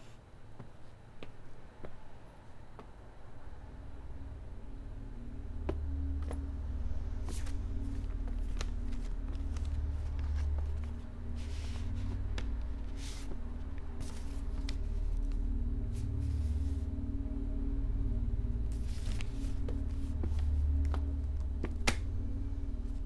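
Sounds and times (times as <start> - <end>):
low musical drone: 3.0 - 23.0
paper rustling: 7.3 - 13.4, 14.0 - 14.9, 18.8 - 20.4.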